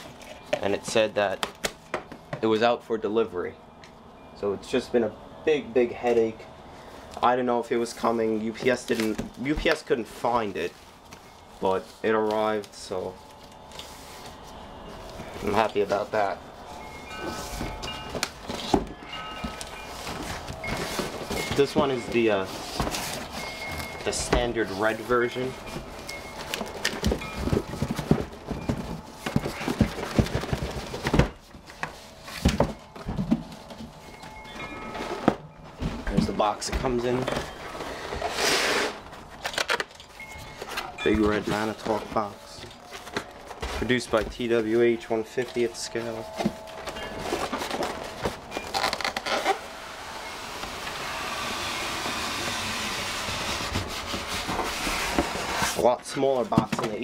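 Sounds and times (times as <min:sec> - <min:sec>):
cardboard boxes knocking and scraping: 0:17.1 - 0:38.4, 0:40.4 - 0:48.9, 0:52.5 - 0:55.8, 0:56.4 - 0:57.0.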